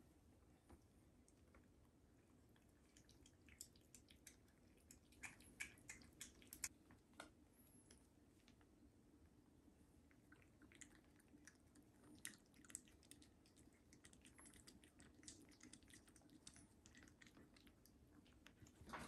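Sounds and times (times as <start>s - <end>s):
cat tongue clicks: 3.0s - 6.7s.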